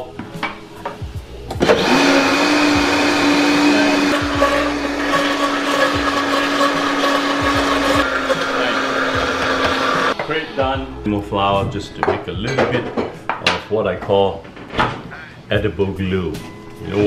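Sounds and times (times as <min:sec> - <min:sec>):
blender motor running: 0:01.6 - 0:10.2.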